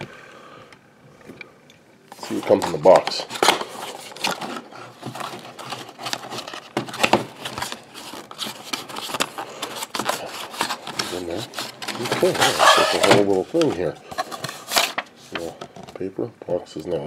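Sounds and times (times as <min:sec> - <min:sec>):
cardboard box being opened: 0:02.2 - 0:15.0
tray sliding and scraping: 0:10.8 - 0:13.4.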